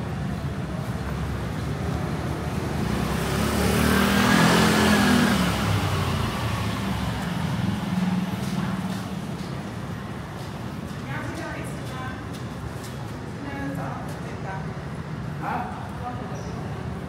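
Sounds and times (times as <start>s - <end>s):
motor scooter passing: 0.6s - 10.0s.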